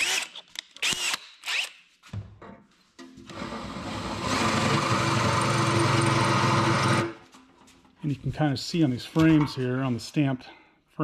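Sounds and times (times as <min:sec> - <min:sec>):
cordless drill boring into steel: 0:03.3 - 0:07.2.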